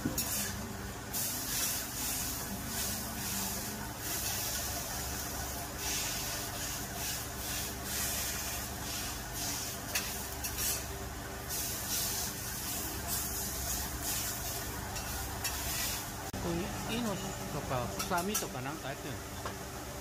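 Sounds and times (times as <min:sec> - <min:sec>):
meat sizzling on a griddle: 0:01.1 - 0:10.9, 0:11.5 - 0:16.2
metal spatulas scraping: 0:09.0 - 0:10.9.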